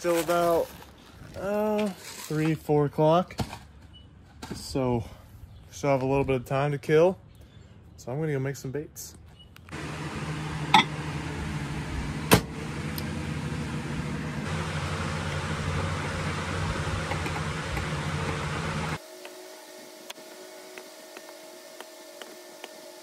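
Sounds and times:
appliance humming: 9.7 - 23.0.

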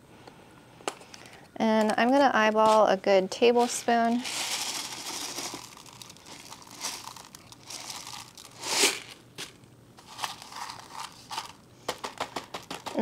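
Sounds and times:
rustling handling noises: 0.8 - 13.0
granules shaken in plastic bottle: 3.6 - 13.0.

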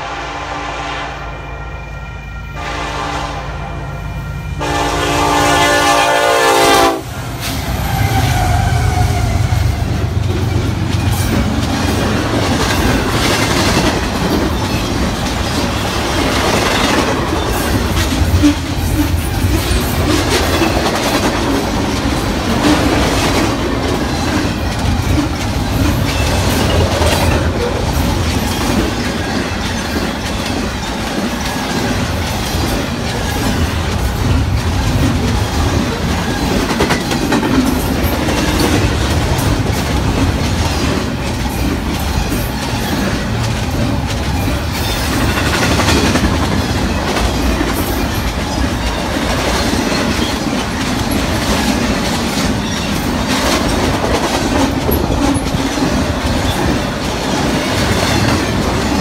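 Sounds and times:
locomotive air horn blasts: 0.0 - 7.2
train wheels clattering over rail joints: 10.0 - 59.0.

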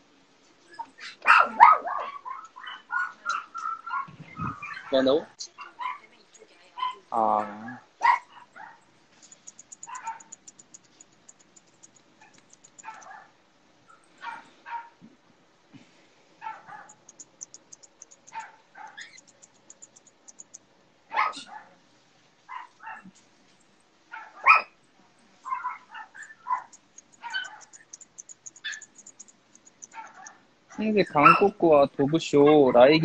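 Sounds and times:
dog barking and yipping: 0.7 - 6.1, 6.8 - 8.8, 9.5 - 15.0, 16.4 - 21.7, 22.5 - 23.1, 24.1 - 24.8, 25.4 - 31.6.

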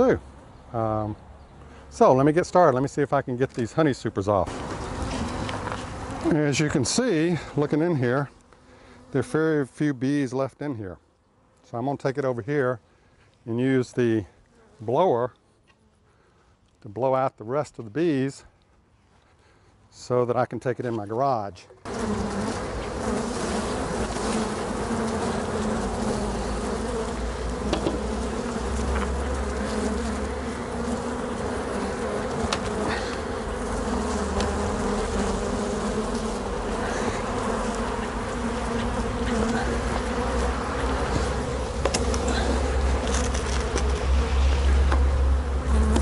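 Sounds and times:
bees buzzing: 4.4 - 9.6, 21.8 - 46.0.

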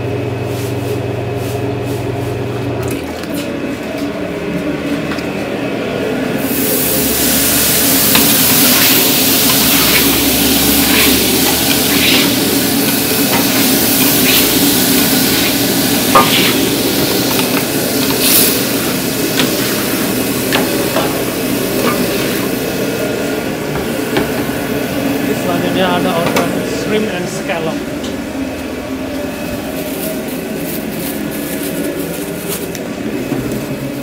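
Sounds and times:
steady hum: 0.0 - 34.0
food sizzling in pan: 6.5 - 22.8.

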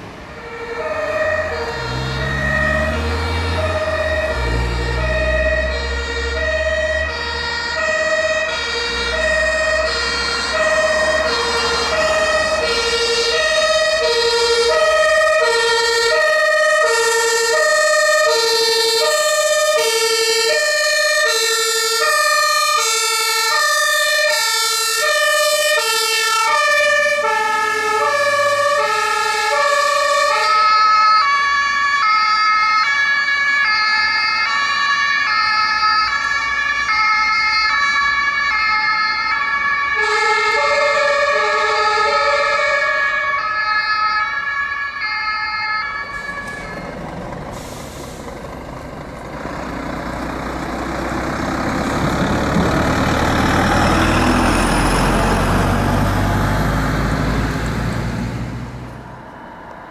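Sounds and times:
heavy vehicle engine rumbling: 0.0 - 30.9, 45.9 - 59.9
two-tone fire engine sirens: 0.0 - 59.9.

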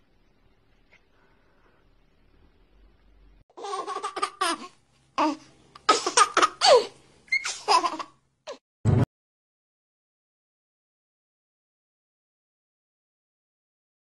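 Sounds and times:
baby-like giggling: 3.6 - 8.6.

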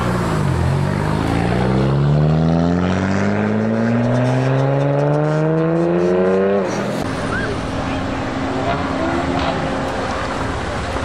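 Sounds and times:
car engine accelerating: 0.0 - 11.0.

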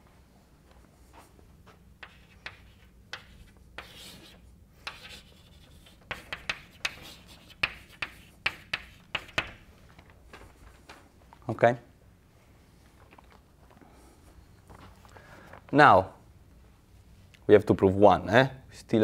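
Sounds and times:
chalk tapping and scraping on blackboard: 2.0 - 9.6.

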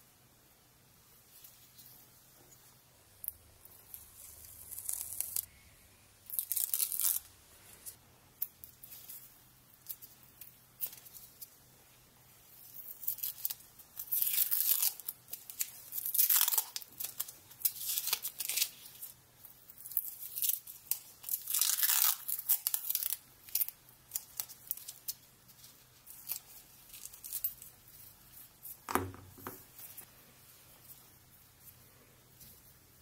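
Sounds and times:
foil tape peeling and tearing: 4.2 - 5.5, 6.4 - 7.3, 13.0 - 18.8, 20.0 - 25.0.

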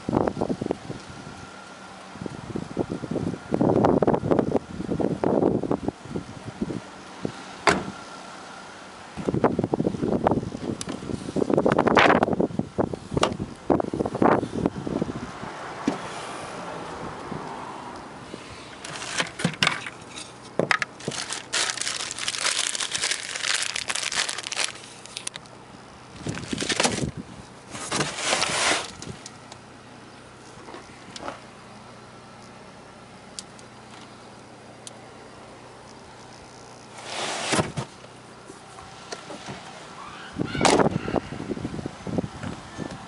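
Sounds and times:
crinkling handling noise: 18.8 - 29.6.

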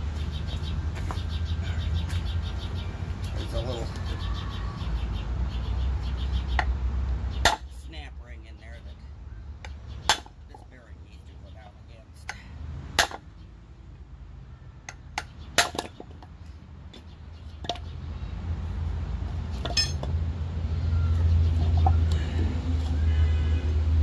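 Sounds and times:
metal parts rattling: 19.6 - 20.1
metallic clinks and taps: 19.6 - 20.1.

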